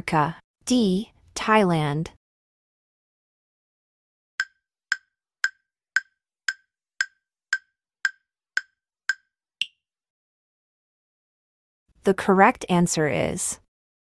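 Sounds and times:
countdown timer ticks: 4.4 - 9.8.

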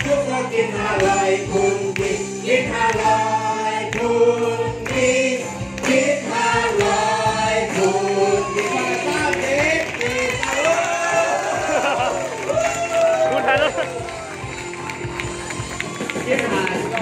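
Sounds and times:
group singing: 0.0 - 12.2
backing music: 0.0 - 17.0
hands clapping: 8.5 - 17.0.

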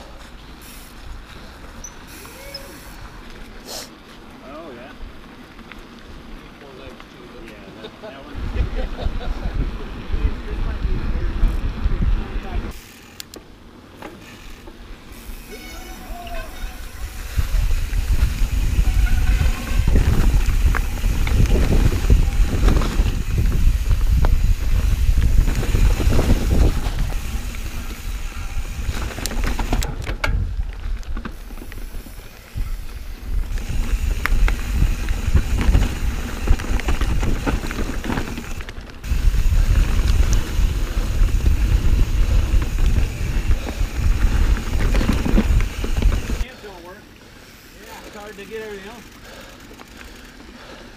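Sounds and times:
bike clicks and rattles: 5.1 - 46.5, 47.5 - 50.9
wind buffeting microphone: 8.3 - 12.8, 16.8 - 46.4.

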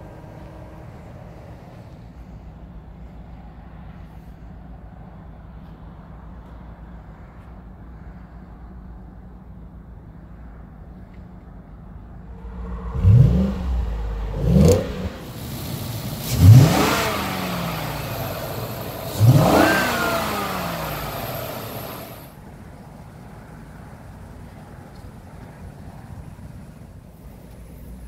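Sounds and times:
engine idling: 12.1 - 22.4
truck engine revving: 12.2 - 22.3.

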